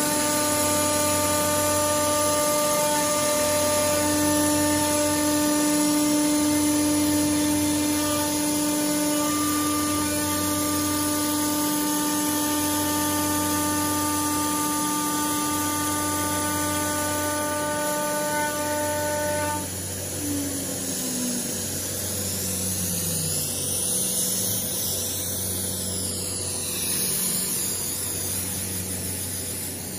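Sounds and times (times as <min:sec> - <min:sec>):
router spindle whining: 0:00.0 - 0:29.9.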